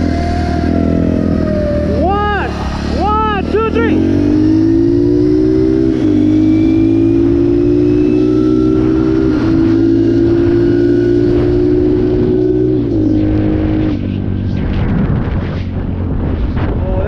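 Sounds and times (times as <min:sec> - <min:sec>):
dirt bike engine at high revs: 0:00.0 - 0:16.8
wind on microphone: 0:04.0 - 0:17.0.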